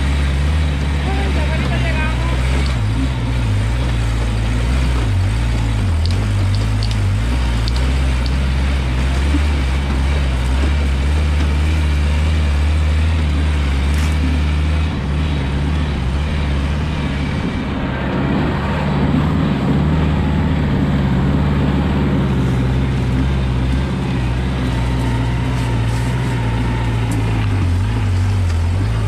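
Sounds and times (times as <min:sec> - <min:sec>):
buggy engine running: 0:00.0 - 0:29.0.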